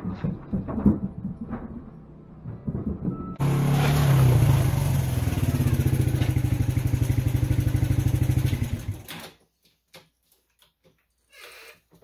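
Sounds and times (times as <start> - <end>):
atv engine driving past: 2.7 - 9.1.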